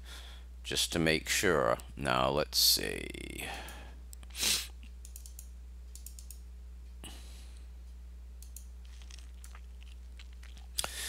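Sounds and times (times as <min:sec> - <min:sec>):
low electrical hum: 0:00.0 - 0:11.0
computer mouse clicking: 0:05.0 - 0:06.4.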